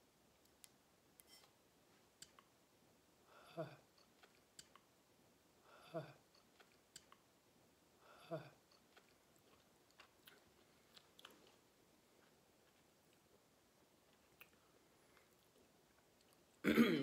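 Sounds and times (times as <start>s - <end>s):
lip and tongue clicks: 4.0s - 4.9s, 6.3s - 7.3s, 14.1s - 14.6s.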